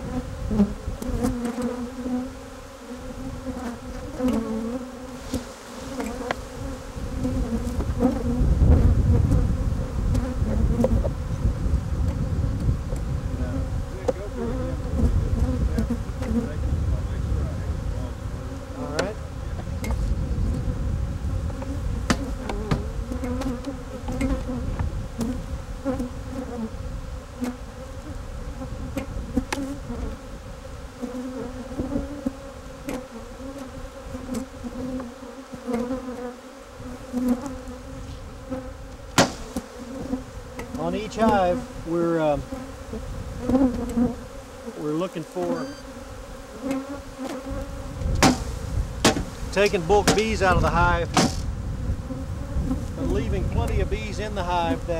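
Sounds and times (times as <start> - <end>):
honeybees buzzing: 0.0 - 54.9
sharp knocks: 39.2 - 39.6, 48.2 - 49.3, 50.0 - 50.4, 51.1 - 51.5.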